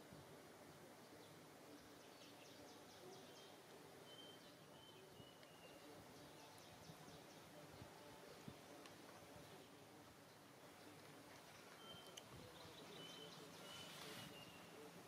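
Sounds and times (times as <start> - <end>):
faint high chirps: 11.5 - 15.0.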